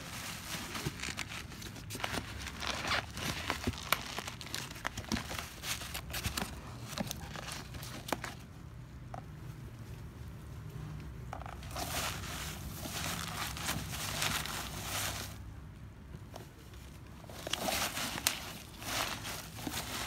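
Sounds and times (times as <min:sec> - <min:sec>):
bubble wrap crinkling: 0:00.0 - 0:08.4, 0:11.5 - 0:15.4, 0:17.2 - 0:20.0
cardboard box tearing: 0:17.3 - 0:20.0.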